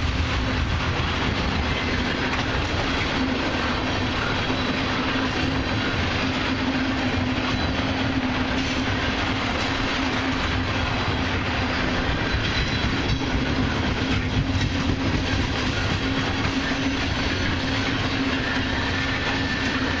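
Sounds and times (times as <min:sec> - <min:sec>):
freight train rolling past: 0:00.0 - 0:20.0
wheels clacking over rails: 0:00.0 - 0:20.0.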